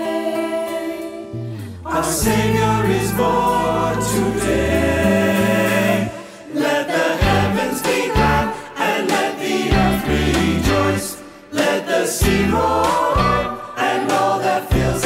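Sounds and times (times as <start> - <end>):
mixed choir singing: 0.0 - 15.0
instrumental accompaniment: 0.6 - 15.0
steady bass line: 1.8 - 5.9.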